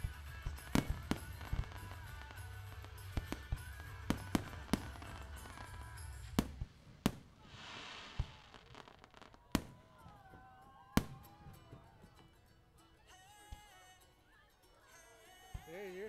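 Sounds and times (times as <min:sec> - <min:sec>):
music: 0:00.0 - 0:06.8, 0:07.9 - 0:16.0
fireworks hissing: 0:00.0 - 0:10.1
fireworks bangs: 0:00.0 - 0:12.3.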